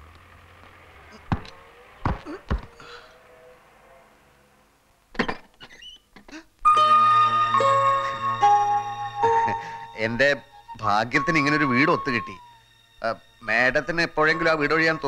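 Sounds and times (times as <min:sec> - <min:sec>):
wooden door thuds: 0:01.3 - 0:02.7.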